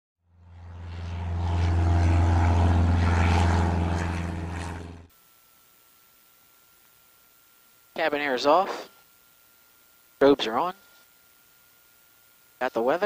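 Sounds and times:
propeller plane drone: 0.2 - 5.7.

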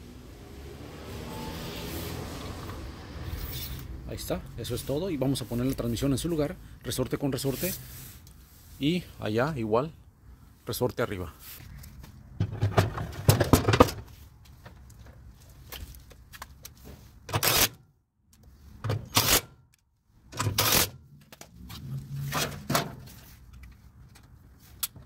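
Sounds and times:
metal clanking and scraping: 21.7 - 23.4.

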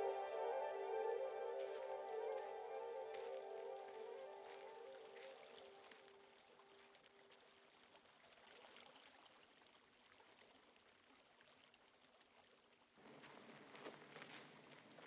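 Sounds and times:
faint hiss of flowing river: 0.0 - 15.0.

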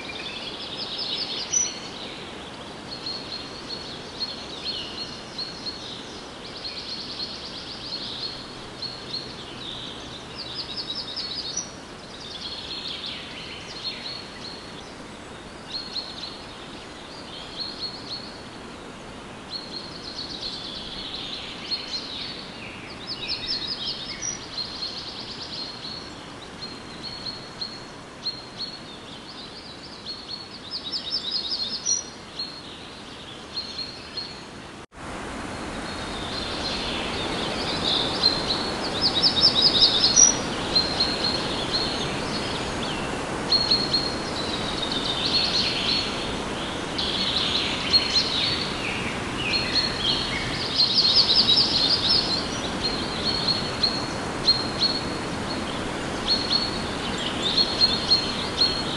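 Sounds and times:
steady hiss: 0.0 - 58.9
birds chirping and singing: 36.2 - 58.9.

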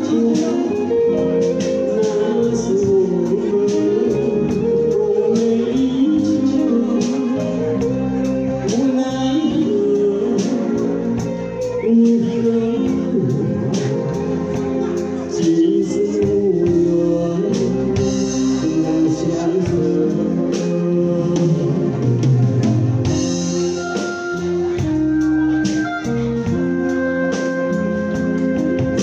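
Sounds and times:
man singing into microphone: 0.0 - 22.3
drum beats: 0.0 - 29.0
live band playing slow ballad: 0.0 - 29.0.

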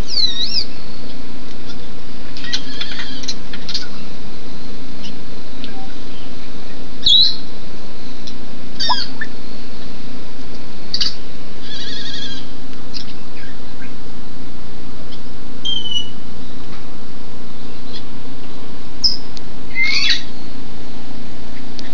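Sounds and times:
parrots whistling and squawking: 0.1 - 0.6, 7.0 - 7.4, 11.0 - 12.4, 19.8 - 20.3.

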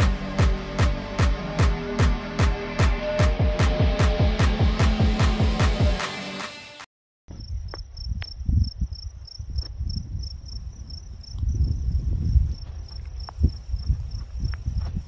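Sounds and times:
insect chirping: 7.3 - 15.0
wind buffeting microphone: 7.3 - 15.0.

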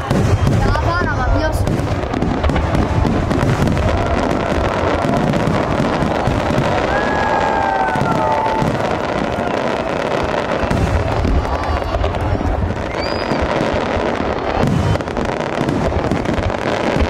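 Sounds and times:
low rumble of booms: 0.0 - 9.3
crackling firework bursts: 0.0 - 17.0
falling firework whistle: 2.8 - 12.0, 12.7 - 13.9, 14.5 - 15.2.

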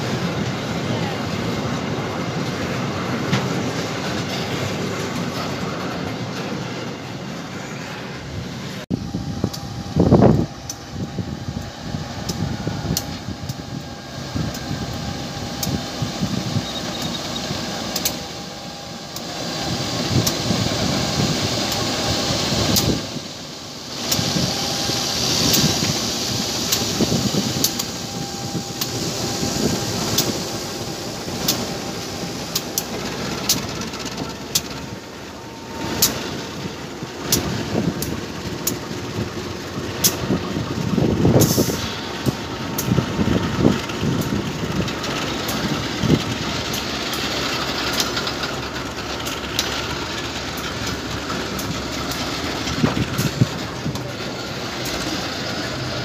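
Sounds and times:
diesel locomotive running: 0.0 - 56.0
train rumble: 0.0 - 56.0
wheels clicking and knocking: 32.5 - 34.9, 42.2 - 56.0.

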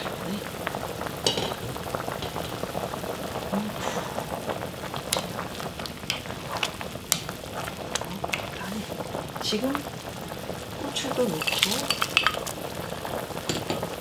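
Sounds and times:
liquid boiling in a pot: 0.0 - 14.0
sharp pops and clicks: 5.0 - 8.7
wooden spoon stirring: 5.1 - 9.0, 11.0 - 12.6.

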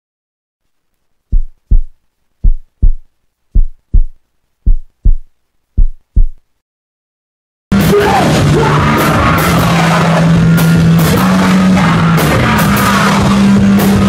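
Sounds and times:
heartbeat thumps: 1.3 - 6.5.

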